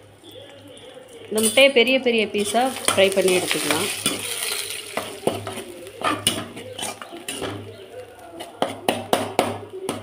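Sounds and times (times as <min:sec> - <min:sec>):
oil sizzling: 0:00.3 - 0:08.8
spatula scraping iron pan: 0:02.8 - 0:07.8.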